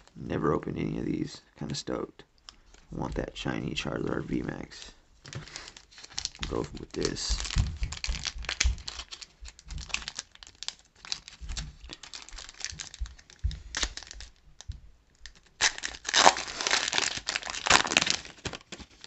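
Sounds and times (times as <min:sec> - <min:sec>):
foil wrapper crinkling: 0:04.7 - 0:19.0
wrapper tearing: 0:05.2 - 0:19.0.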